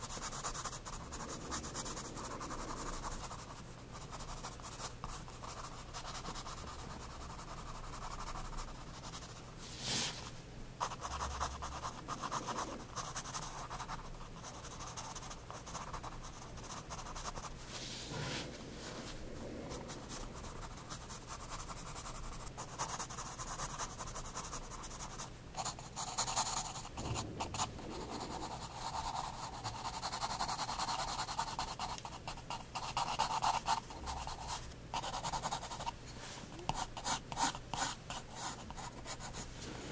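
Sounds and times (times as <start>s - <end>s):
pencil scratching on paper: 0.0s - 10.2s, 10.8s - 17.5s, 19.9s - 36.0s, 36.7s - 39.9s.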